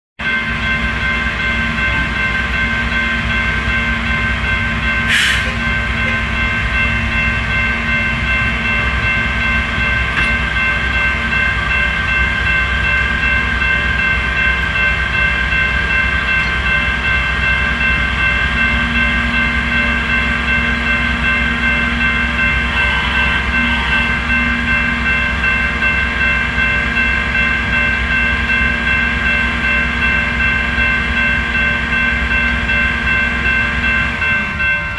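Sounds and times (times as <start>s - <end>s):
high-pitched ringing tone: 0.2s - 34.9s
short hiss of air: 5.1s - 5.5s.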